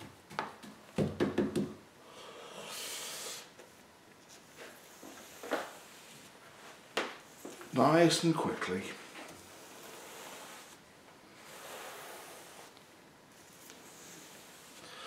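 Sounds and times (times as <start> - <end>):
brush stroke hissing on canvas: 2.5 - 3.6, 4.2 - 15.0.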